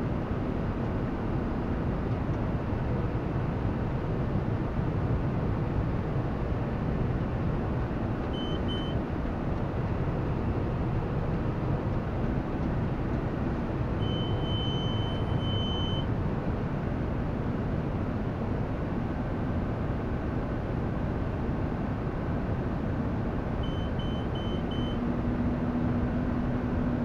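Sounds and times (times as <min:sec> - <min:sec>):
high electronic beep: 0:14.0 - 0:16.1, 0:23.6 - 0:25.0.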